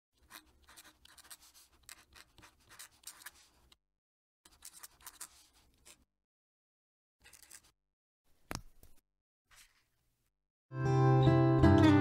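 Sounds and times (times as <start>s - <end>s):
pen nib scratching on paper: 0.2s - 3.8s, 4.5s - 6.1s.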